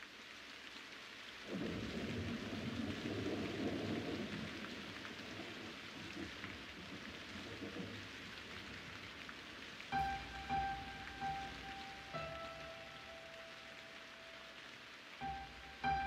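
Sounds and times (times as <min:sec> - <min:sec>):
steady rain: 0:00.0 - 0:16.0
sustained musical notes: 0:10.0 - 0:16.0.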